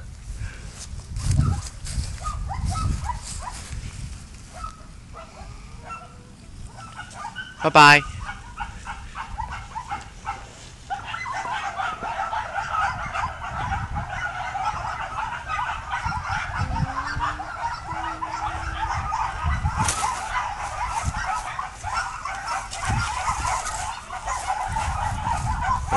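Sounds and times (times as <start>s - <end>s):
chatter of many birds: 5.5s - 25.9s.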